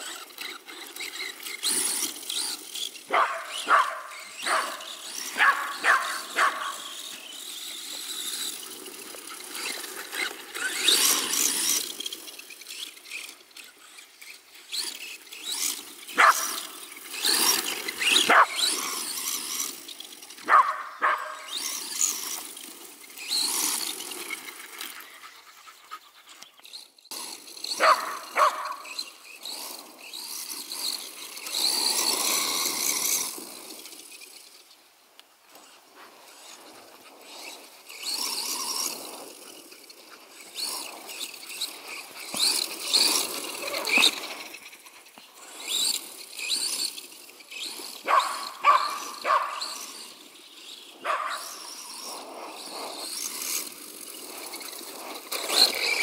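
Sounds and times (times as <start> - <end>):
toy car motor whining: 0.0 - 56.0
dog barking: 3.1 - 4.8, 16.2 - 16.5, 20.5 - 21.4, 27.8 - 28.7, 48.1 - 49.6, 51.0 - 51.4.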